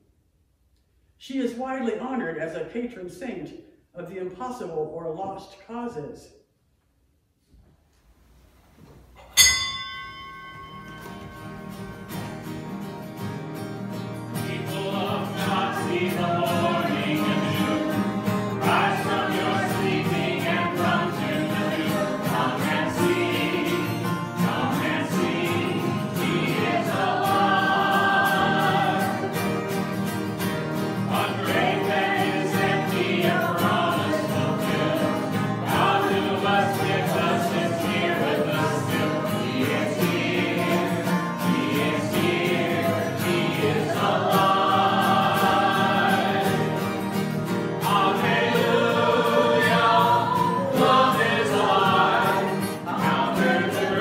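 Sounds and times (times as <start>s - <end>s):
sharp ringing note: 9.2s - 11.8s
choir singing a hymn: 11.0s - 54.0s.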